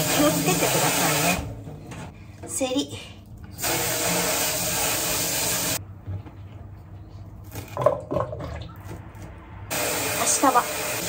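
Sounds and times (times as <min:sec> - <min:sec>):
tap water running into sink: 0:03.5 - 0:05.8.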